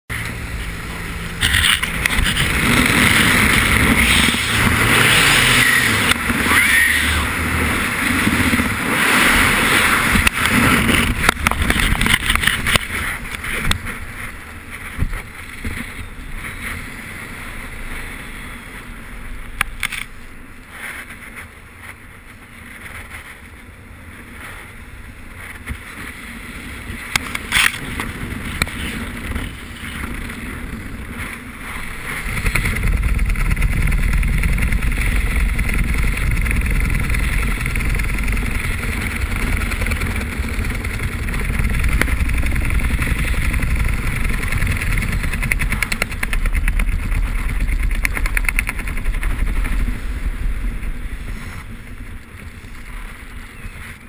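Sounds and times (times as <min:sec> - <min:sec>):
air rushing over microphone: 0:00.1 - 0:54.0
flaps and knocks: 0:32.2 - 0:49.9.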